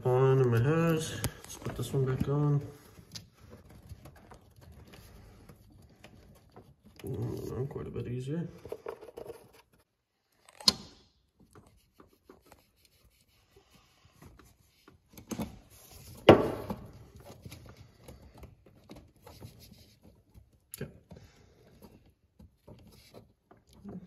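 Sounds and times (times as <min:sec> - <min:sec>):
quiet rubbing on rubber hose: 0:11.5 - 0:16.2, 0:17.1 - 0:20.6, 0:21.5 - 0:23.6.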